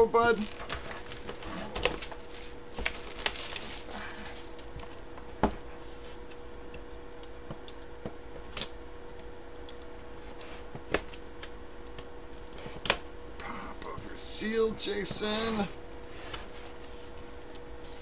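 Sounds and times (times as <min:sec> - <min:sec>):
faint steady hum: 0:00.0 - 0:18.0
cardboard scraping rustle: 0:00.4 - 0:04.5.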